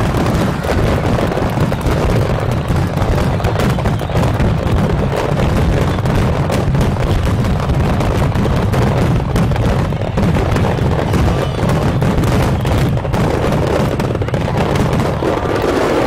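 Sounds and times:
fireworks booming and crackling: 0:00.0 - 0:16.0.

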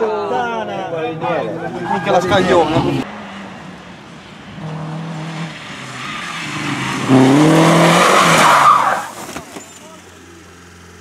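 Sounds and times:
rally car engine revving: 0:01.0 - 0:09.3.

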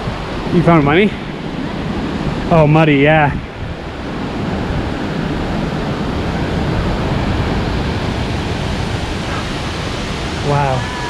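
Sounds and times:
waterfall rushing: 0:05.1 - 0:11.0.

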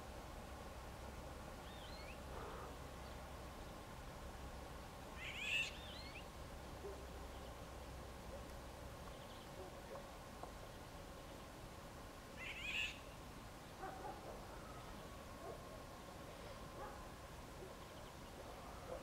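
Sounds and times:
bird calling: 0:05.2 - 0:06.3, 0:12.4 - 0:13.2.

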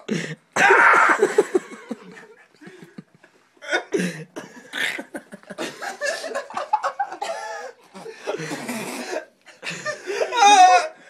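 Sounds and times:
people laughing: 0:04.8 - 0:08.5.

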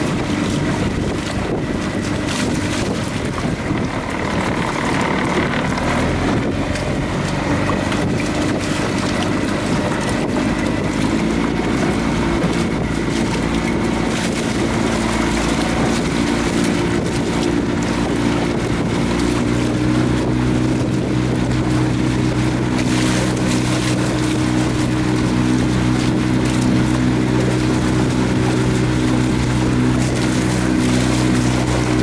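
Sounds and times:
boat motor running: 0:00.0 - 0:32.0
water rushing along hull: 0:00.0 - 0:32.0
wind on microphone: 0:00.0 - 0:32.0.

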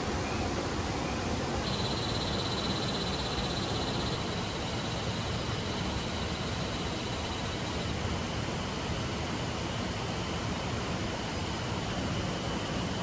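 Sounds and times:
insect or frog trilling: 0:01.6 - 0:08.0.

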